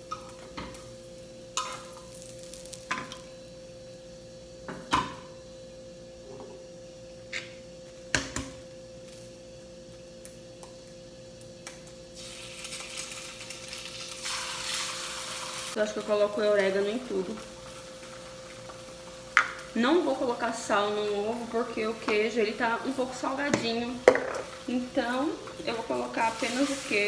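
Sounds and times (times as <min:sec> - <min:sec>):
faint steady hum: 0:00.0 - 0:27.0
egg sizzling in pan: 0:01.6 - 0:03.4, 0:11.6 - 0:27.0.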